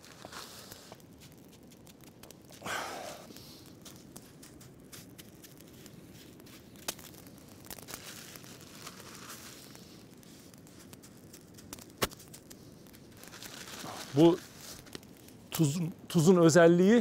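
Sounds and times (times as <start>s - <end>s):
rock salt crunching: 0.0s - 17.0s
sharp crackles: 0.0s - 17.0s
plastic bag crinkling: 3.3s - 15.4s.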